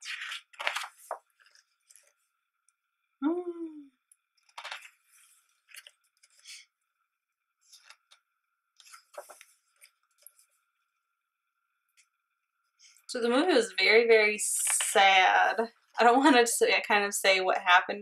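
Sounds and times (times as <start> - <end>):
book pages turning: 0.0 - 2.2, 4.4 - 6.6, 7.6 - 8.2, 8.8 - 10.7
hummed voice falling in pitch: 3.2 - 4.0.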